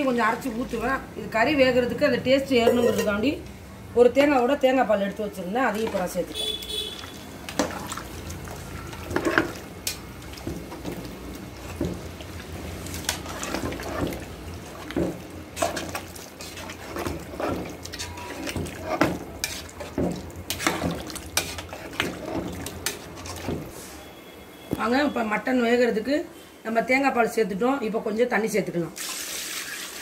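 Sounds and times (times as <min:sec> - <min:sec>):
spoon scraping metal pot: 0:02.6 - 0:03.2, 0:15.6 - 0:23.6
stew sloshing: 0:05.7 - 0:23.7.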